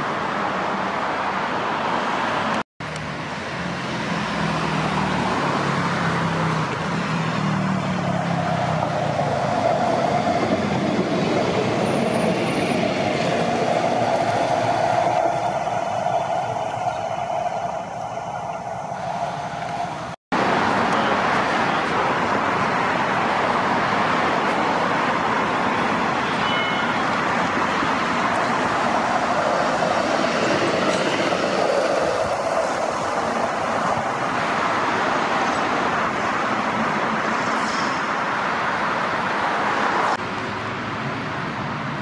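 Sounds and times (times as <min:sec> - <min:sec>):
road traffic passing: 0:00.0 - 0:42.0.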